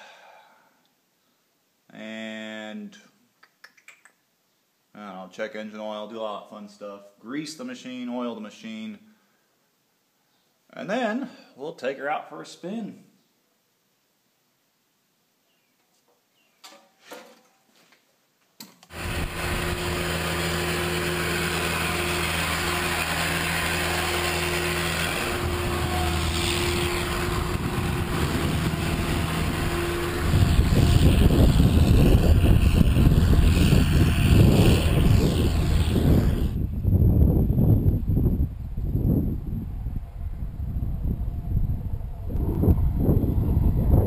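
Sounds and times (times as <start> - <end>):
swather engine running: 18.9 - 36.6
wind on microphone: 25.2 - 44.0.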